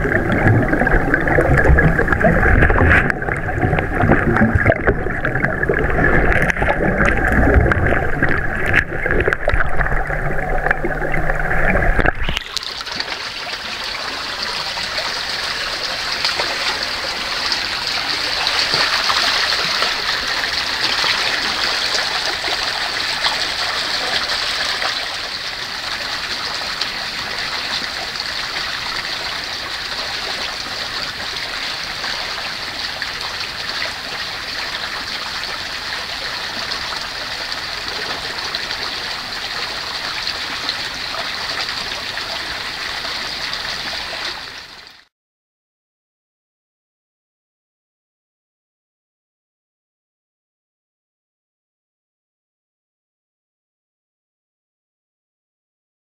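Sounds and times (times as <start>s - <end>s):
muffled underwater rumble: 0.0s - 12.6s
water rushing from spring: 0.0s - 45.1s.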